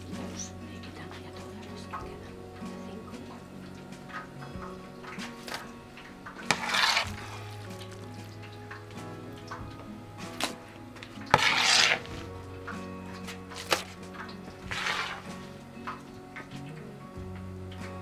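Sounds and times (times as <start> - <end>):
plate scraping rice on table: 6.4 - 8.0, 11.3 - 12.3, 14.6 - 15.5.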